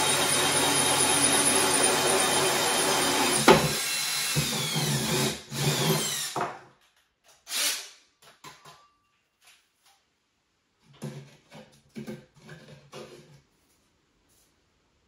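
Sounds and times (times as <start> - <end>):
cordless drill with hole saw: 0.0 - 6.4, 7.4 - 8.0.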